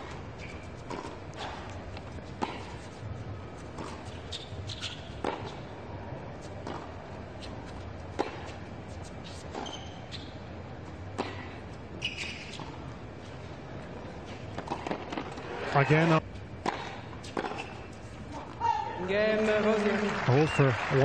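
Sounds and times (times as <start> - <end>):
tennis ball hit by rackets: 6.6 - 6.9, 16.6 - 17.6.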